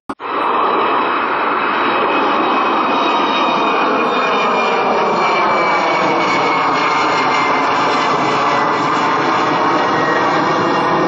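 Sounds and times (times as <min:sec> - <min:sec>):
jet engines roaring with high whine: 0:00.1 - 0:11.0.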